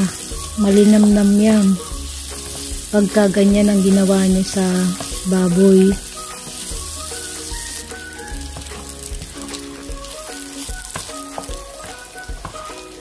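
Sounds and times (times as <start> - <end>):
background music melody: 0.0 - 13.0
pork sizzling in a pan: 0.0 - 13.0
wooden spatula stirring: 3.6 - 13.0.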